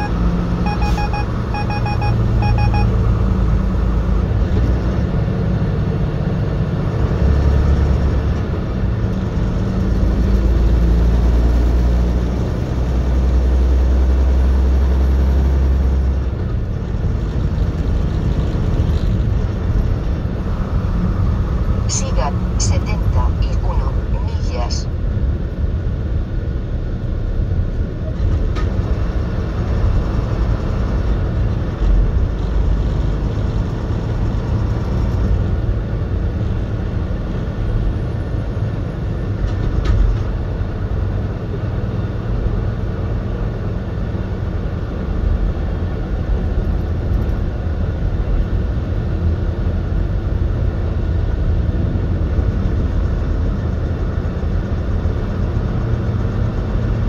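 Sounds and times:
road noise: 0.0 - 57.0
truck engine rumble: 0.0 - 57.0.

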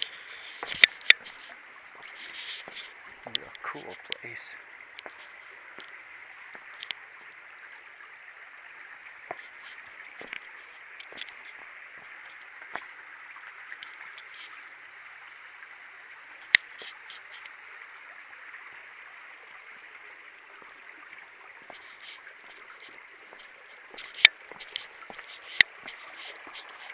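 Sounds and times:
creek rushing: 0.0 - 26.9
footsteps on rocky trail: 23.3 - 26.8.

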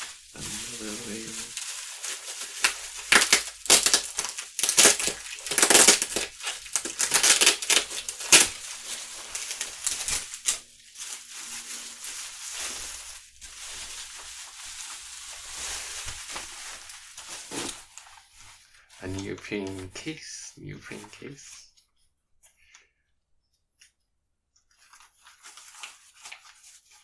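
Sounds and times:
plastic wrap crinkling: 0.0 - 20.3, 24.6 - 27.0.

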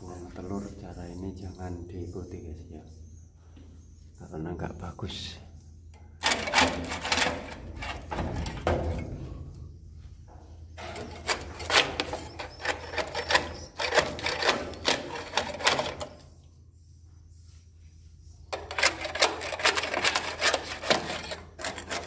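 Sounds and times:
birds clicking rapidly: 10.8 - 16.6.

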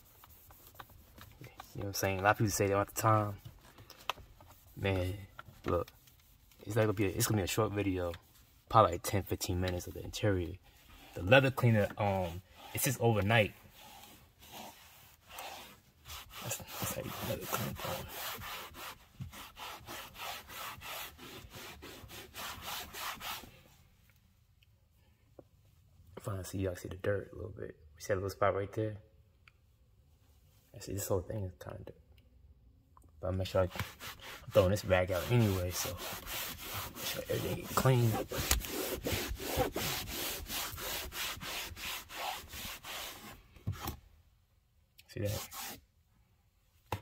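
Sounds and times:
cloth rubbing on dashboard: 0.0 - 3.7, 4.3 - 23.7, 33.5 - 44.0, 45.2 - 45.8.

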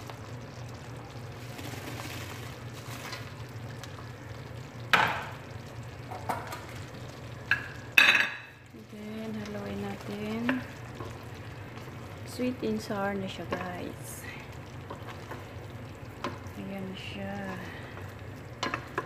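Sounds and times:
metal cookware clanking: 7.5 - 8.5.

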